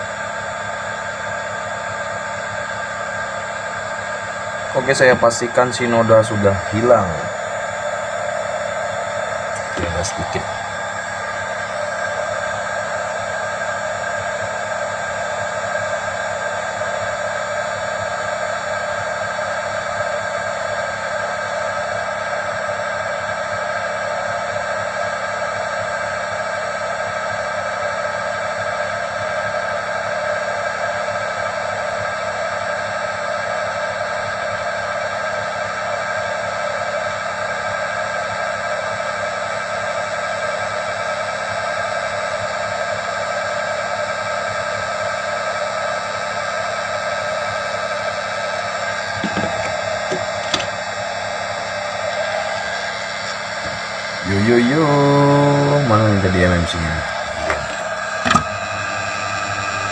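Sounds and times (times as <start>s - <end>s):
electric blower whirring: 6.4s - 13.2s, 48.6s - 59.9s.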